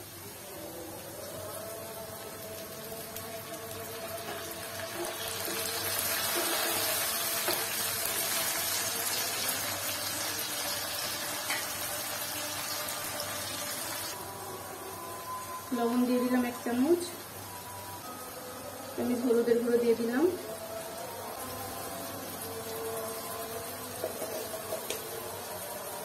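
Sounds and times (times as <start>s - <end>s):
water hissing in hot oil: 0.0s - 14.2s.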